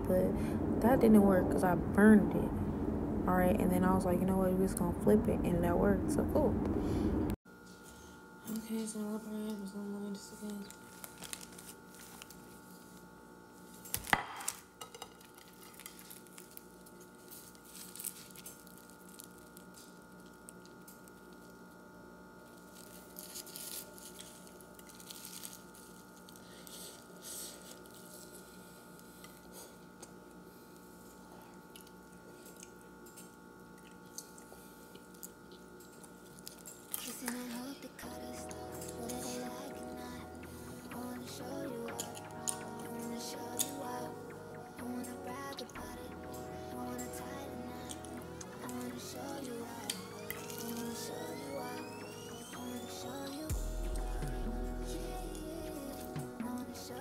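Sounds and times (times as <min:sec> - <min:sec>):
faint steady hum: 0:00.0 - 0:57.0
person chewing food: 0:22.9 - 0:37.4.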